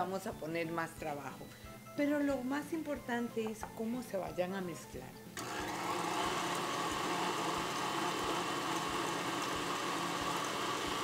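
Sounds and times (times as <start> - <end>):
electric stand mixer running: 5.4 - 11.0.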